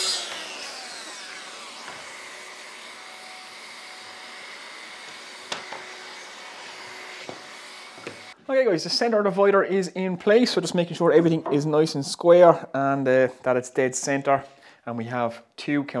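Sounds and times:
saw whine winding down: 0.0 - 4.4.

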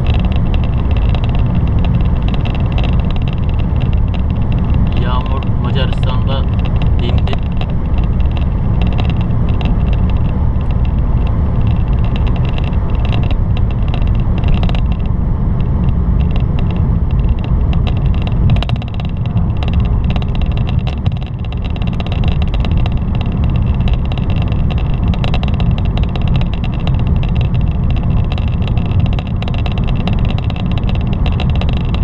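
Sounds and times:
car road and engine rumble: 0.0 - 32.0
light crackle of ticks: 0.0 - 32.0.

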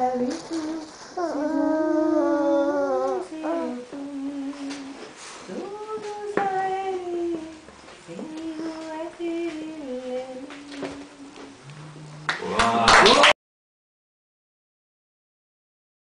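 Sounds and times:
woman singing unaccompanied: 0.0 - 11.7.

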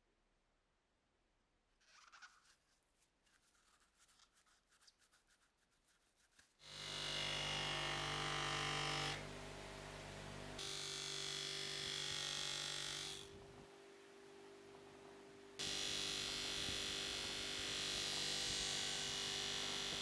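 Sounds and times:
cloth rubbing on metal: 1.8 - 6.6.

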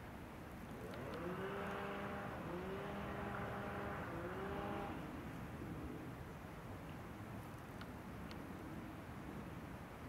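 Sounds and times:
motor revving up: 0.8 - 5.0.

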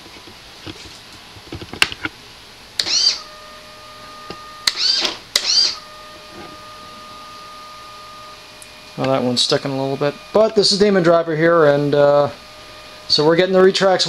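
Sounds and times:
servo high buzz: 2.8 - 14.0
servo motor whine: 2.8 - 14.0.

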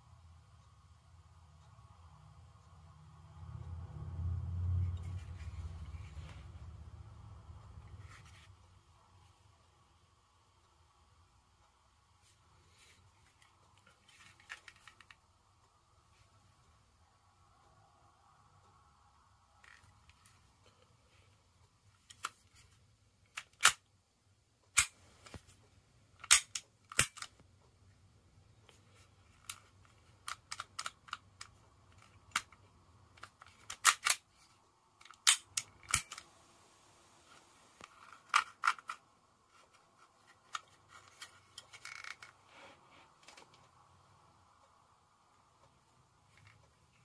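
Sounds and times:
air pistol mechanical clicks: 26.2 - 27.4, 33.2 - 34.2, 35.0 - 36.2.

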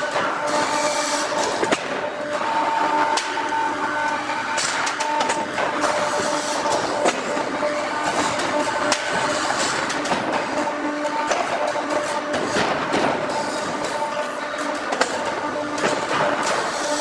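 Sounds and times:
hydraulic press din: 0.0 - 17.0
sharp clicks and knocks: 8.1 - 16.7.

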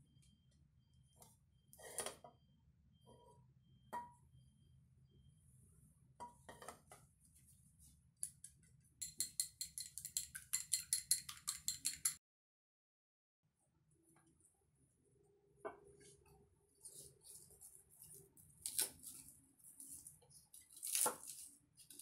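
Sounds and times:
chopsticks beating egg in bowl: 9.0 - 12.2
kitchenware clinks and knocks: 9.0 - 12.2.

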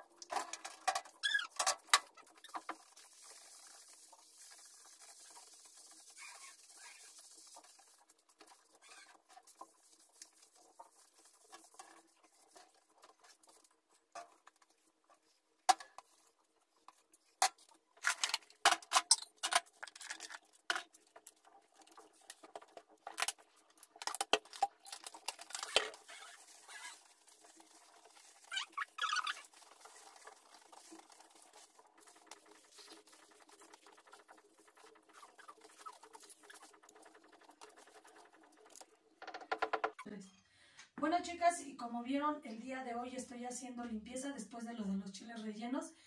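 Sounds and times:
sponge scrubbing glass jar: 2.2 - 13.6, 25.5 - 38.8.

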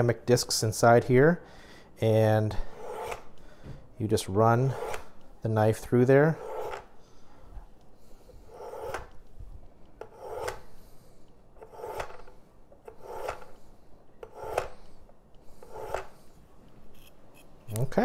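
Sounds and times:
knife rasping through sharpener: 6.4 - 6.8, 8.4 - 9.1, 10.0 - 10.7, 11.6 - 12.3, 12.9 - 13.6, 14.2 - 14.9, 15.5 - 16.2.

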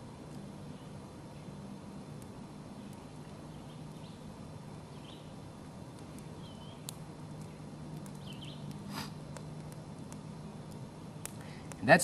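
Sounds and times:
twig fire crackling: 0.0 - 12.0
bird chirps: 2.8 - 4.3, 4.9 - 5.4, 6.3 - 8.7.

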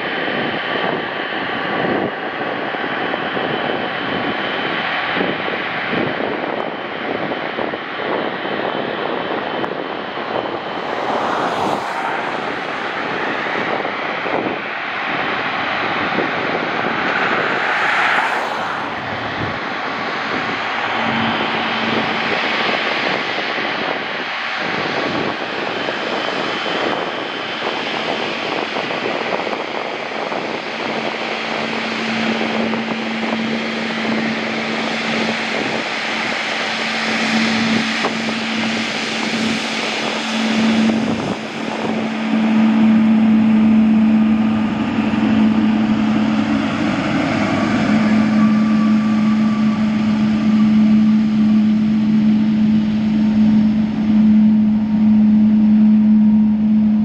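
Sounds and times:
jet airliner passing: 0.0 - 57.0
low hum: 8.9 - 25.5, 30.4 - 57.0.

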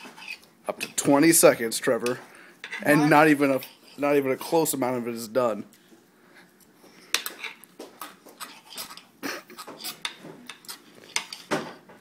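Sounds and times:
cutlery scraping on a plate: 0.0 - 1.1, 2.6 - 4.0, 7.0 - 11.6.

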